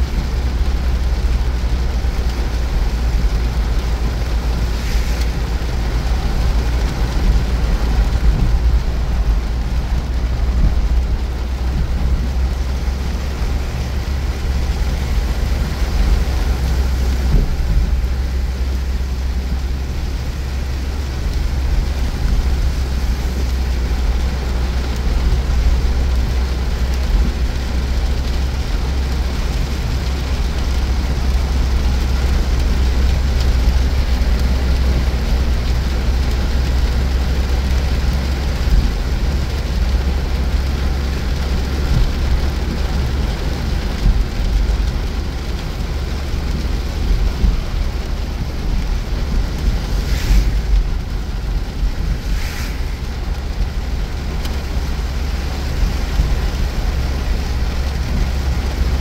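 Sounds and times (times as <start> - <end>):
rain and tyre spray hiss: 0.0 - 59.0
road noise rumble: 0.0 - 59.0
short hisses: 49.9 - 50.8, 52.0 - 53.2.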